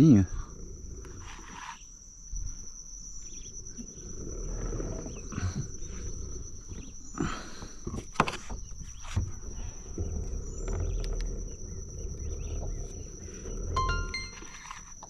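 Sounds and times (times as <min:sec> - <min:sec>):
high-pitched whine: 0:13.8 - 0:14.8.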